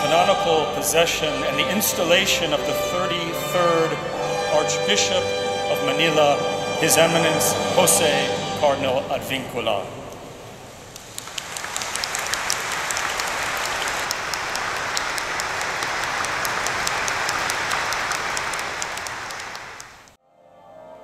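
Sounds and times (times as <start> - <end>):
soft music: 0.0 - 9.9, 20.2 - 21.0
congregation clapping: 10.9 - 20.2.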